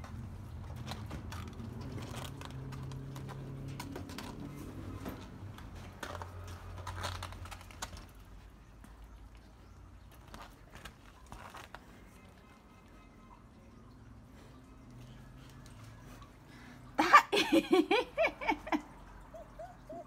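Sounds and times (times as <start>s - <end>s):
puppy claws clicking on wire mesh: 0.0s - 8.4s.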